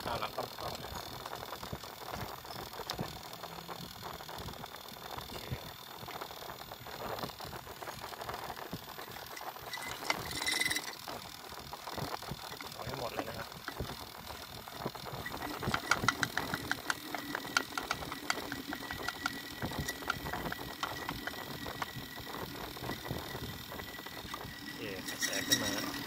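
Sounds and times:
compressor running: 0:00.0 - 0:26.0
hose clicks and rubbing: 0:09.4 - 0:10.9, 0:15.2 - 0:22.0.

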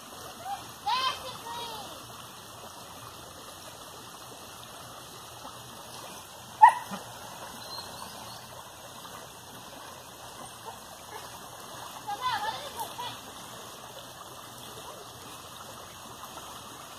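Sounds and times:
stream running over stones: 0:00.0 - 0:16.9
dog yelp: 0:06.6 - 0:07.0.

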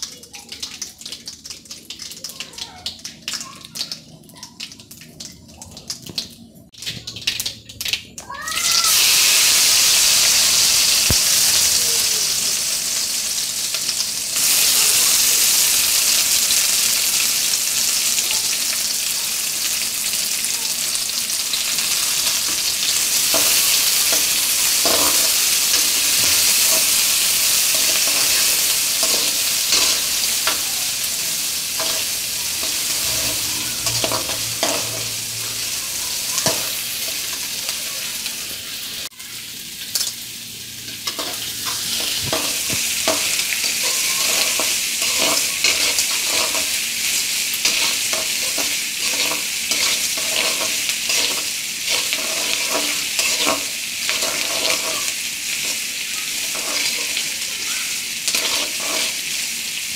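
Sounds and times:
onions sizzling in hot oil: 0:08.3 - 0:59.9
metal spatula scraping pan: 0:27.7 - 0:30.6, 0:31.8 - 0:36.7, 0:41.1 - 0:46.8, 0:47.6 - 0:55.8, 0:56.4 - 0:57.2, 0:58.3 - 0:59.3.

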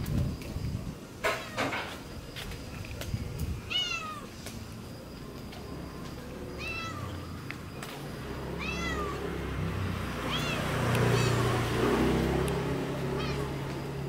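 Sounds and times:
cat meowing: 0:03.7 - 0:04.3, 0:06.6 - 0:07.2, 0:08.6 - 0:09.4, 0:10.2 - 0:11.5, 0:13.0 - 0:13.8.

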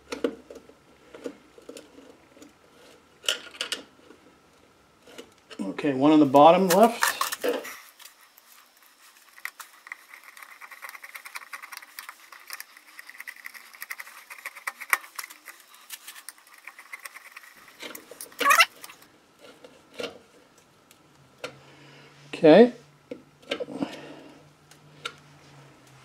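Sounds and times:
screwdriver turning metal screws: 0:16.2 - 0:19.0
short rising squeak: 0:18.4 - 0:18.8.

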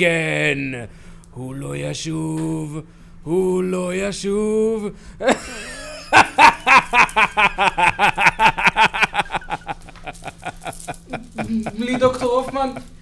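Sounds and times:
man laughing: 0:05.2 - 0:13.0.

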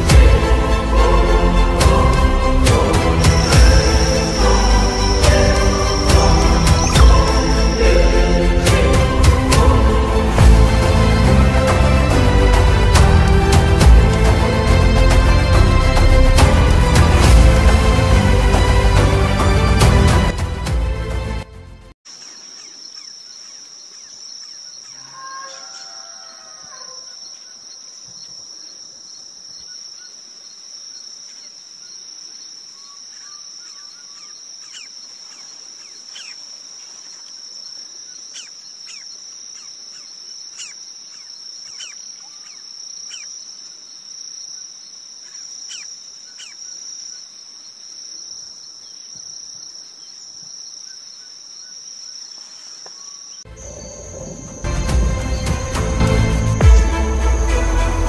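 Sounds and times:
high-pitched insect trill: 0:03.3 - 0:09.1, 0:22.1 - 0:58.0.

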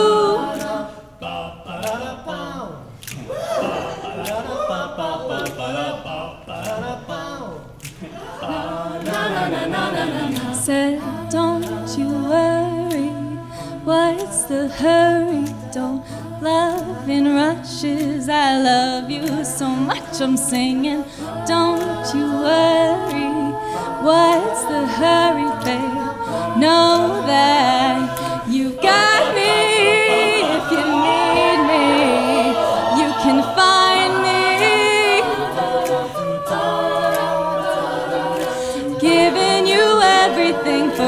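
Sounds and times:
a cappella group singing: 0:00.0 - 0:41.0.

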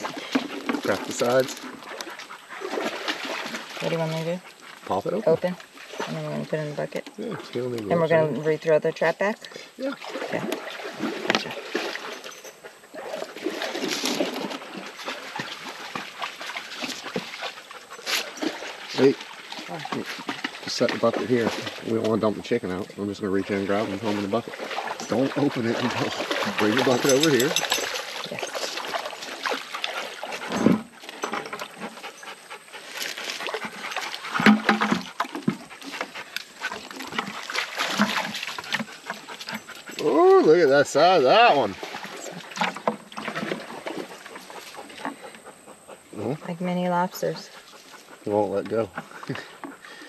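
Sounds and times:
creek water trickling: 0:00.0 - 0:50.0
dog panting: 0:31.5 - 0:37.9, 0:38.5 - 0:40.1, 0:44.0 - 0:50.0.

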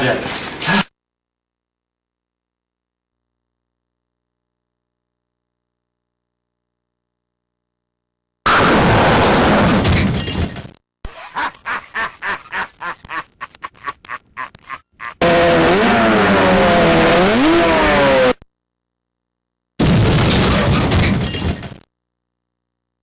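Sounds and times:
loud crashing noise: 0:08.5 - 0:10.7, 0:19.8 - 0:21.8.

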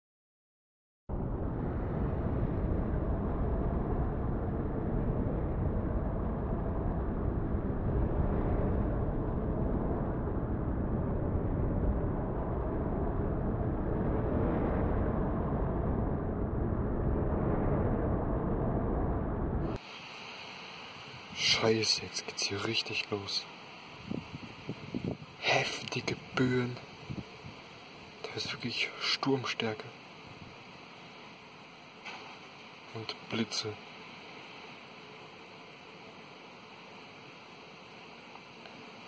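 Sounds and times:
wind buffeting microphone: 0:01.1 - 0:19.8, 0:24.0 - 0:27.8.

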